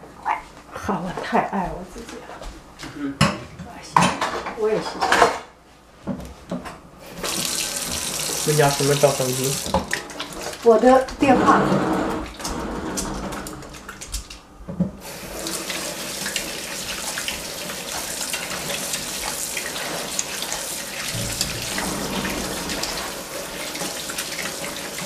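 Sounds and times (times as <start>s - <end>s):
tap water running into sink: 7.0s - 10.8s, 15.0s - 25.0s.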